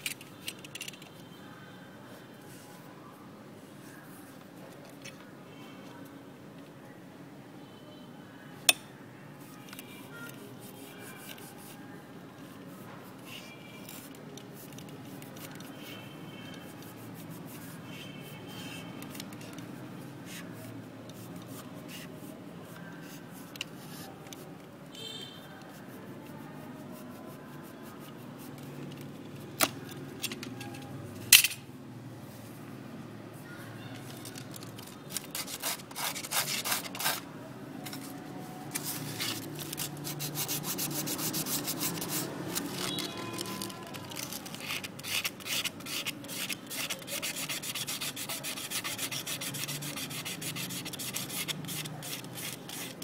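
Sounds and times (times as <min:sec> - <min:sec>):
knife rasping on wood: 0:35.1 - 0:37.2, 0:39.0 - 0:42.8, 0:44.2 - 0:53.0.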